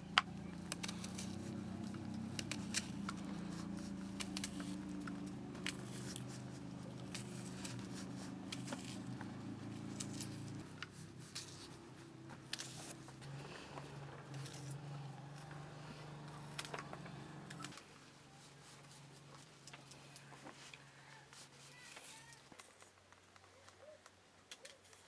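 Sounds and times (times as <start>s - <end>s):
onion skin crackling: 0.0s - 17.8s
low hum: 0.0s - 18.4s.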